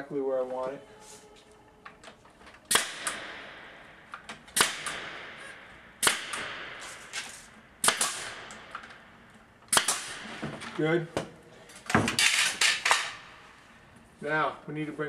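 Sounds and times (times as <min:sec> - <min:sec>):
staple gun firing: 0:02.7 - 0:03.5, 0:04.2 - 0:05.3, 0:06.0 - 0:09.0, 0:09.7 - 0:10.2, 0:12.1 - 0:13.2.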